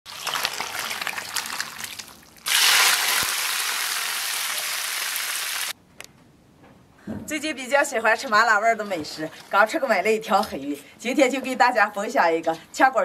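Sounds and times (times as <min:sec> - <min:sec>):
broth pouring and splashing: 0:00.0 - 0:05.7
hot oil sizzling: 0:02.4 - 0:05.8.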